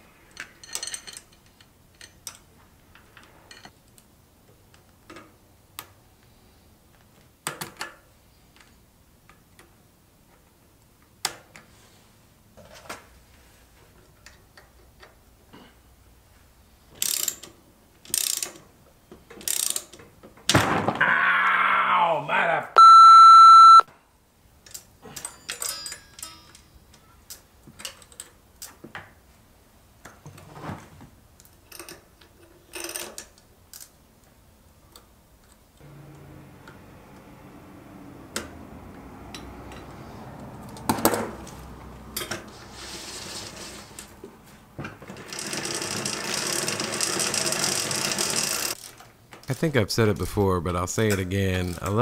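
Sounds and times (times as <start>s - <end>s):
metal tools and chain clinking: 0.3s - 2.4s, 25.0s - 26.9s.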